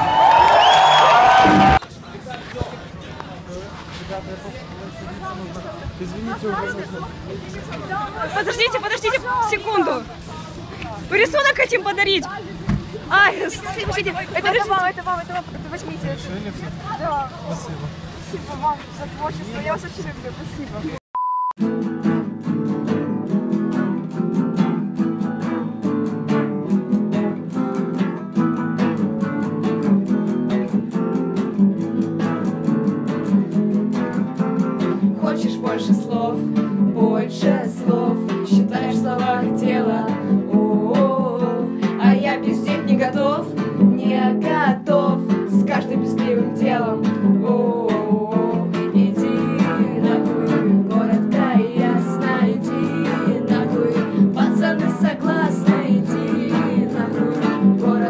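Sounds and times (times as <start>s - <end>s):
acoustic guitar strummed: 21.6s - 58.0s
bass guitar: 21.6s - 58.0s
woman singing: 35.1s - 58.0s.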